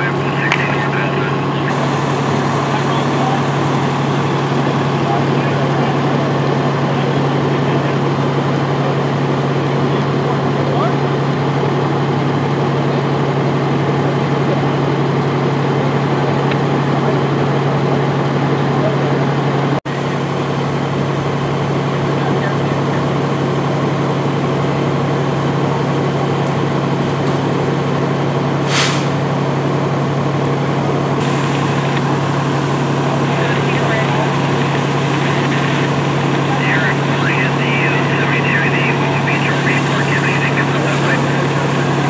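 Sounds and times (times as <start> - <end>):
diesel engine running: 0.0 - 42.0
air brake hiss: 28.6 - 29.2.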